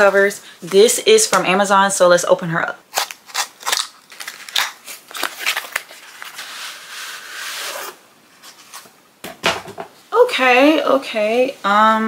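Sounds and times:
package tearing and rustling: 0:02.9 - 0:06.6.

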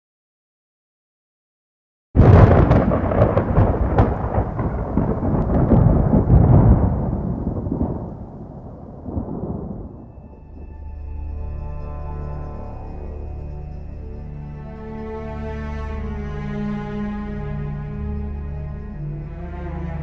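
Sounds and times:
thunderclap with rolling rumble: 0:02.2 - 0:10.9.

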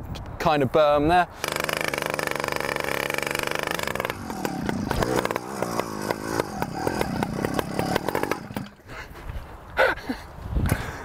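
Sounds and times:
small petrol engine revving: 0:01.4 - 0:08.8.

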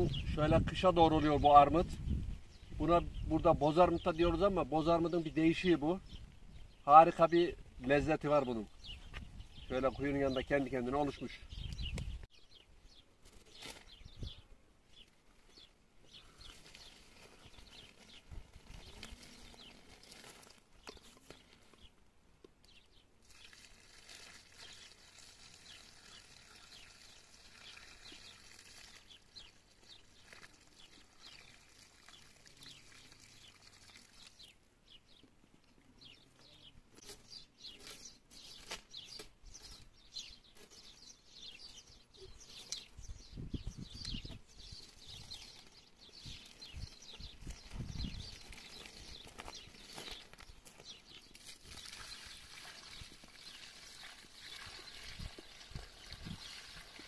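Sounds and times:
birds chirping: 0:00.0 - 0:22.0, 0:24.5 - 0:57.0.

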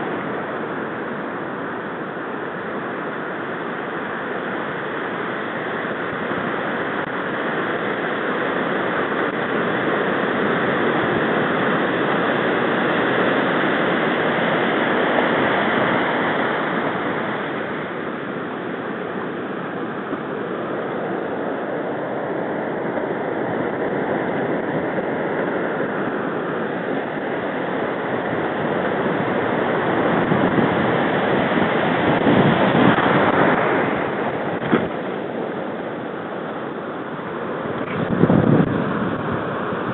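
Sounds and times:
ocean waves breaking: 0:00.0 - 0:39.9.

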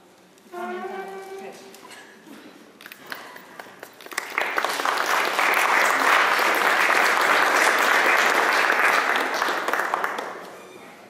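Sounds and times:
audience applauding: 0:02.8 - 0:10.6.

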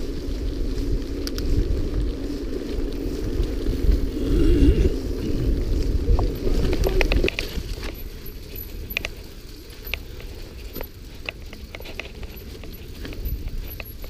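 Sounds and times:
mountain bike rattling and clicking: 0:00.0 - 0:14.0
wind rush on microphone: 0:00.0 - 0:14.0.

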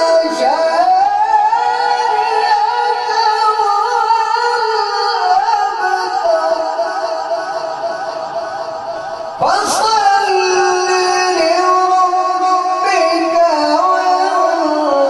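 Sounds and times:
man chanting quran recitation: 0:00.0 - 0:15.0.

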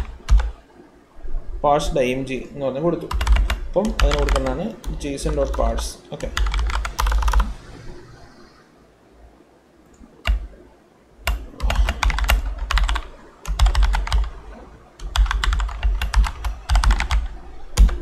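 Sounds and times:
keyboard typing: 0:00.0 - 0:00.6, 0:03.1 - 0:07.5, 0:10.2 - 0:10.5, 0:11.2 - 0:14.4, 0:15.0 - 0:18.0.

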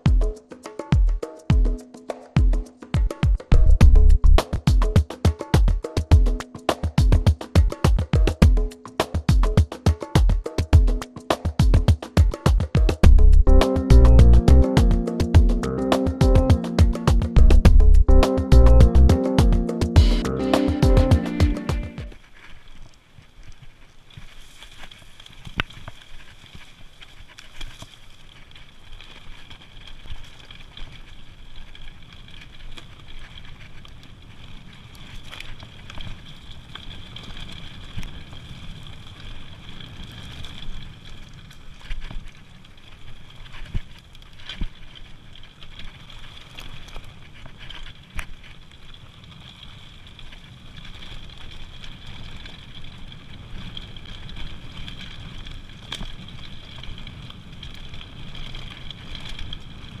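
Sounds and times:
bike tyres rumbling on dirt: 0:27.8 - 1:00.0.

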